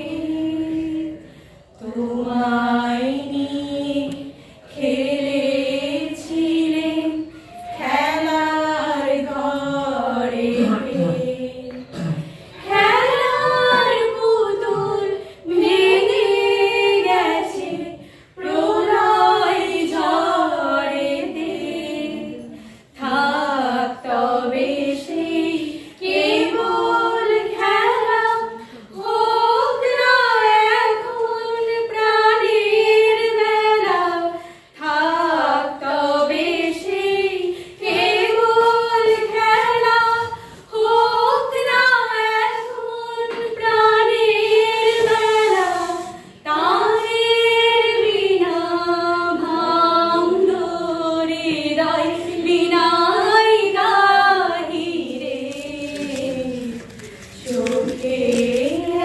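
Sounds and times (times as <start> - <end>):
women singing without accompaniment: 12.6 - 59.0.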